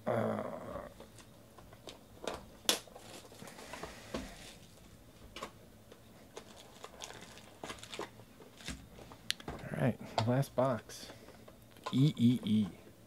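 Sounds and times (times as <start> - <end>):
pack wrapper crinkling: 2.7 - 3.6, 6.3 - 8.8.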